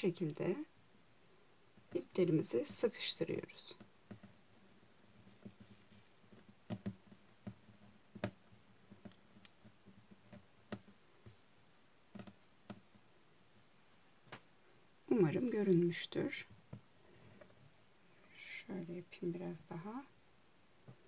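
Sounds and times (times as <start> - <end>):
soft clicks and taps of cord: 3.7 - 4.4, 5.0 - 13.0, 14.2 - 14.5.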